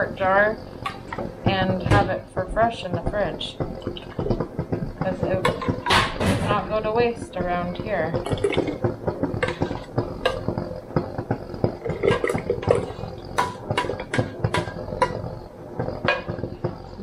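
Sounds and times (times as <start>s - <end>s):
utensil scraping metal pot: 0.2s - 16.8s.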